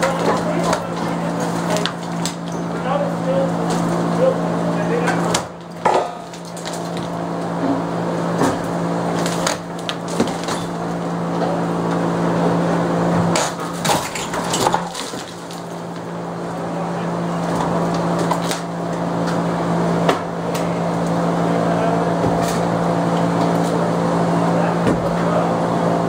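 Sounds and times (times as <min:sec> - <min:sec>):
machine hum: 0:00.0 - 0:26.0
wood breaking and cracking: 0:05.3 - 0:07.5, 0:08.3 - 0:10.9, 0:13.3 - 0:16.1.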